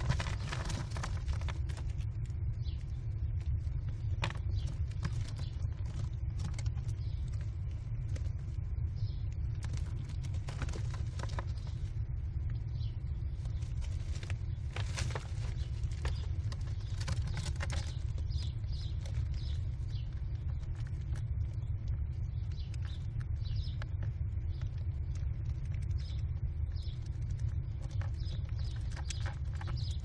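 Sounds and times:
scratches and taps on gravel: 0.0s - 8.4s, 9.2s - 11.9s, 13.4s - 30.0s
low rumble: 0.0s - 30.0s.

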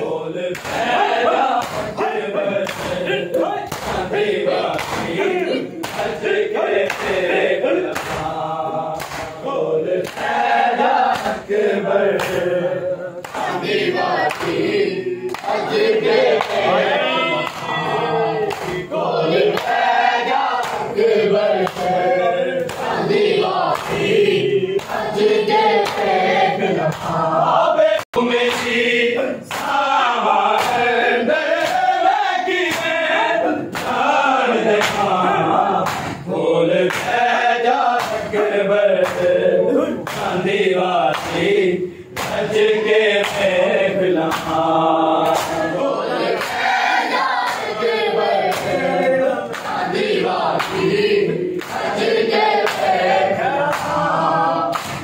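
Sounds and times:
men chanting in unison: 0.0s - 55.0s
hands slapping chests: 0.5s - 5.2s, 5.8s - 9.4s, 10.0s - 11.5s, 12.1s - 12.5s, 13.2s - 16.7s, 17.4s - 17.8s, 18.4s - 26.2s, 26.9s - 27.2s, 28.0s - 28.8s, 29.5s - 29.8s, 30.5s - 30.9s, 31.6s - 31.9s, 32.6s - 33.0s, 33.7s - 35.2s, 35.8s - 36.3s, 36.9s - 39.4s, 40.0s - 40.4s, 41.1s - 42.6s, 43.2s - 43.5s, 44.2s - 47.8s, 48.5s - 52.0s, 52.6s - 55.0s.

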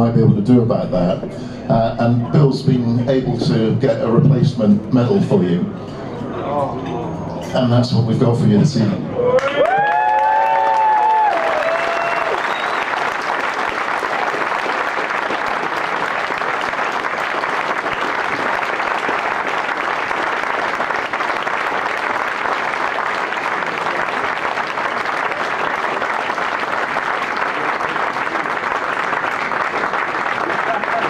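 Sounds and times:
audience applauding: 9.2s - 31.0s.

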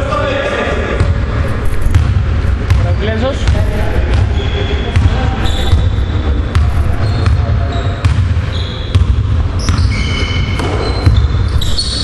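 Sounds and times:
steady low rumble: 0.9s - 9.6s
sneaker squeaks: 1.5s - 2.0s, 2.7s - 12.0s
basketball bouncing on wooden floor: 1.8s - 4.3s, 4.9s - 11.8s.

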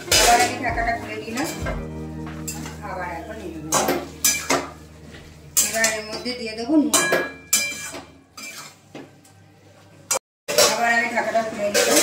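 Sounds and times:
spatula scraping a metal pot: 0.0s - 0.7s, 7.5s - 8.8s.

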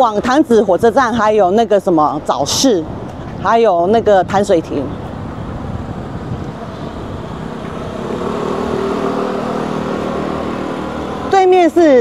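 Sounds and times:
street traffic noise: 0.0s - 12.0s
motor scooter engine passing: 4.9s - 12.0s.

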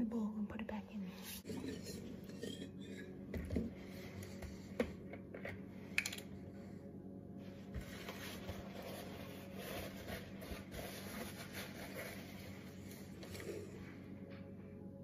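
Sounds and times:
faint low hum: 0.0s - 15.0s
paper towel rustling: 7.4s - 13.1s.

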